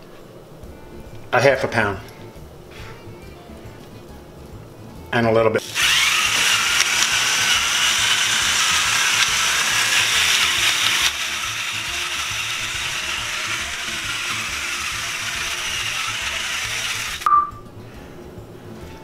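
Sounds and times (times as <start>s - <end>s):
electric pepper grinder whirring: 5.6s - 17.3s.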